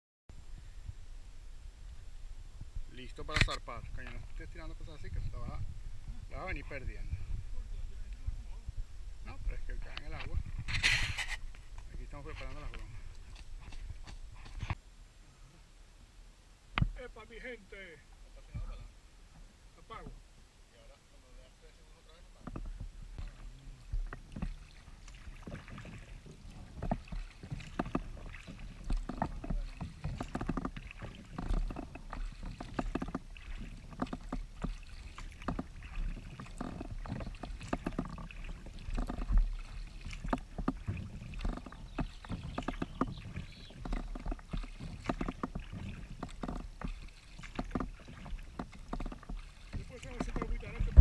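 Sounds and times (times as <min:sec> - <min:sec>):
water lapping along hull: 0:00.3 - 0:15.7, 0:16.8 - 0:51.0
kayak paddle splashing: 0:00.4 - 0:14.8, 0:21.3 - 0:51.0
low rumble: 0:03.8 - 0:14.4.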